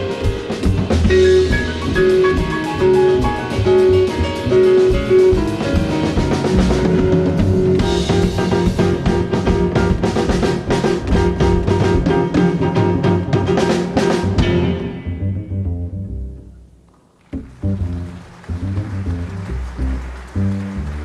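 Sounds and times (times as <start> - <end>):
drum kit strokes: 0.0 - 15.6
double bass: 0.0 - 21.0.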